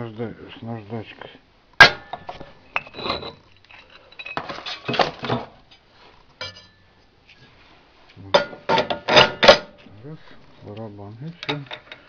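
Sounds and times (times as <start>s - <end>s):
metal parts clinking and clanking: 2.1s - 5.6s, 8.4s - 9.9s, 11.4s - 12.0s.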